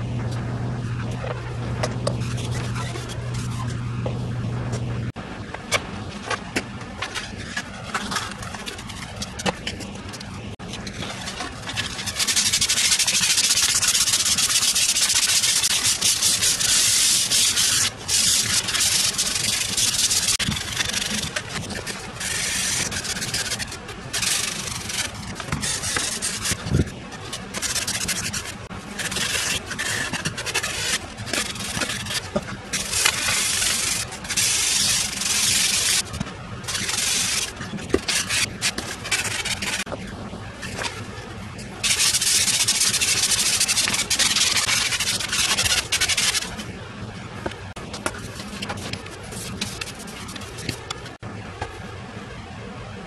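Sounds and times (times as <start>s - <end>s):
sandpaper rasping on wood: 11.0s - 36.1s, 36.7s - 39.9s, 41.8s - 46.6s.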